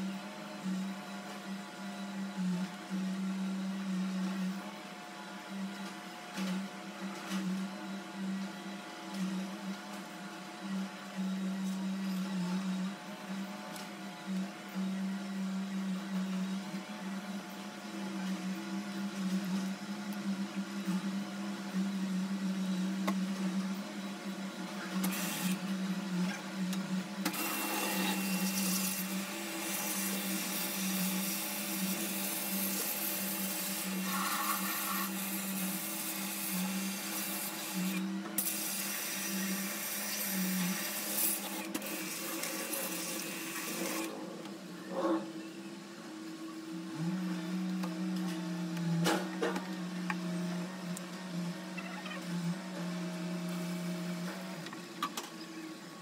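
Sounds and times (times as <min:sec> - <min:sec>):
electric motor humming: 0:24.8 - 0:55.0.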